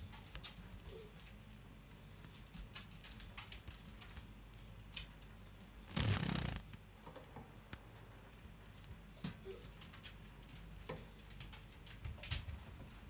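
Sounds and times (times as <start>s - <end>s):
bird feathers rustling: 5.6s - 6.8s.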